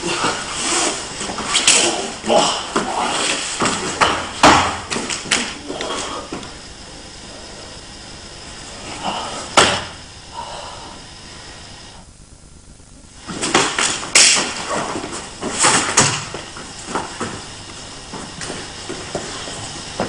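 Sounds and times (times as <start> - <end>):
body landing on padded mat: 9.5 - 10.0
hand strikes slapping: 13.5 - 14.6.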